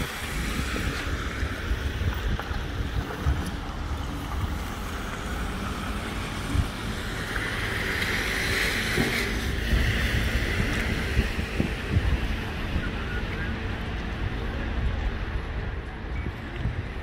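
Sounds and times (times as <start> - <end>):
car tyres hissing on wet road: 0.0 - 13.2
wind gusts on microphone: 0.0 - 17.0.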